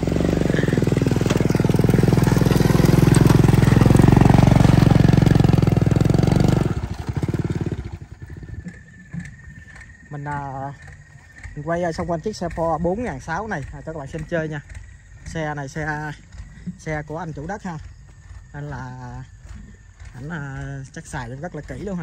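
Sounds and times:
scooter engine pulling away: 0:00.0 - 0:22.0.

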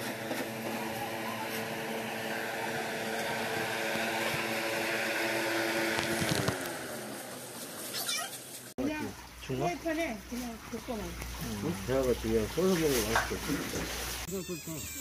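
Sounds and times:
motor humming: 0:00.0 - 0:08.6.

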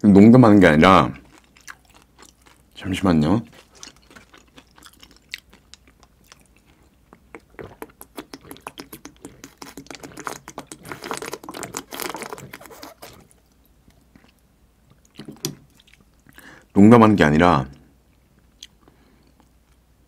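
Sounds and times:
person gulping a drink: 0:04.0 - 0:13.4
wet mouth clicks: 0:04.7 - 0:13.3.

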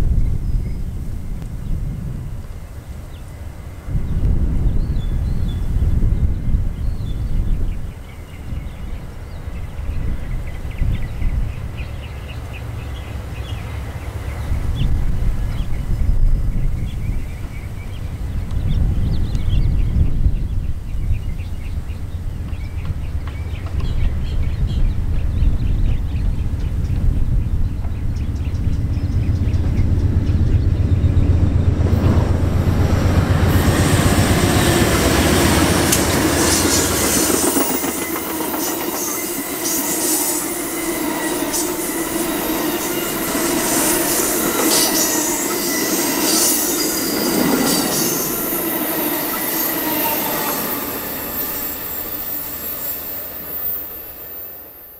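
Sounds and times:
diesel locomotive engine rumble: 0:00.0 - 0:54.9
train cars rolling past: 0:21.2 - 0:54.9
wheels squealing against rails: 0:26.3 - 0:54.9
wheels clicking over rail joints: 0:33.3 - 0:39.8.

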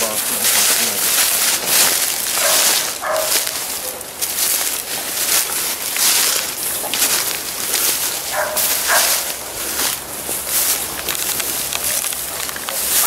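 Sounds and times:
steady rushing hiss: 0:00.0 - 0:13.0
dogs barking faintly: 0:02.4 - 0:04.2, 0:08.3 - 0:09.4.

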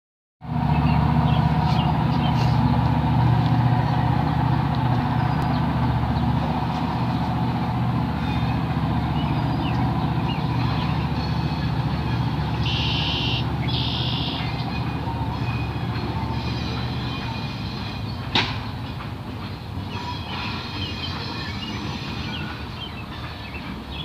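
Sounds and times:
engine idling: 0:00.4 - 0:19.5.

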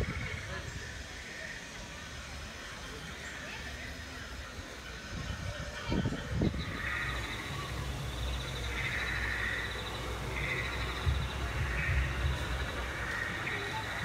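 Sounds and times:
frog calls: 0:06.0 - 0:14.0
low rumble: 0:06.3 - 0:14.0
insect trill: 0:06.4 - 0:14.0.

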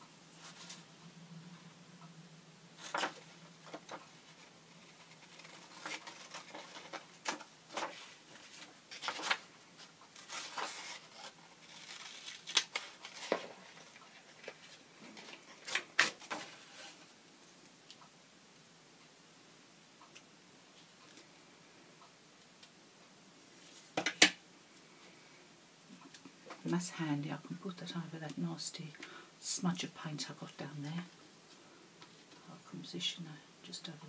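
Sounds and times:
paper rustling: 0:02.8 - 0:17.0.

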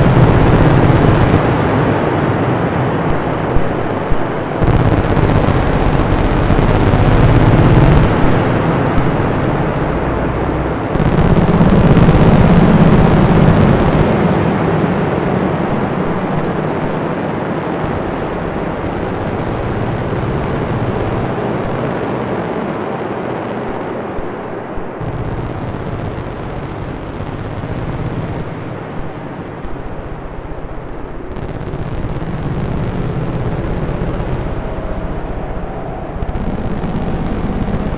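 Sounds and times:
hissy synth noise layer: 0:00.0 - 0:37.9
low rumbling synthesizer drone: 0:31.1 - 0:37.9.

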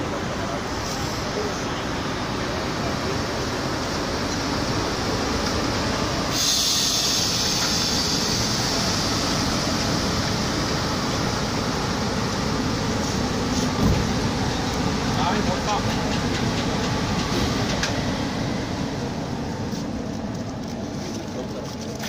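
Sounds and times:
loud hiss: 0:06.2 - 0:12.0.

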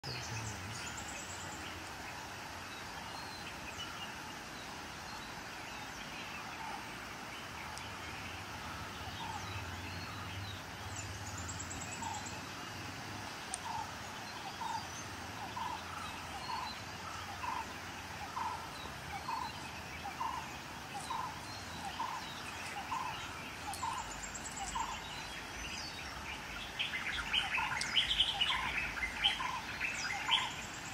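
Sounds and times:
background hiss: 0:00.0 - 0:30.9
forest birds calling: 0:00.0 - 0:30.9
high bird chirping: 0:13.5 - 0:30.9.

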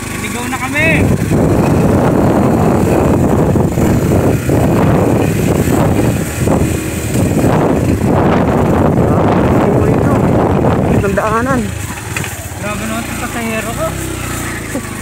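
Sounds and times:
motorcycle engine running: 0:00.0 - 0:15.0
wind rumble on microphone: 0:00.8 - 0:12.8.

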